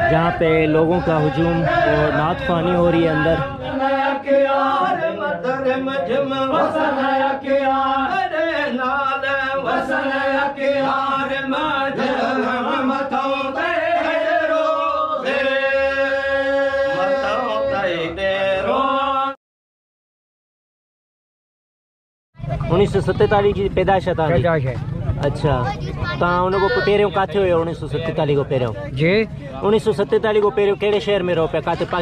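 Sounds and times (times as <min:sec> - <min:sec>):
voices chanting devotional melody: 0:00.0 - 0:19.4.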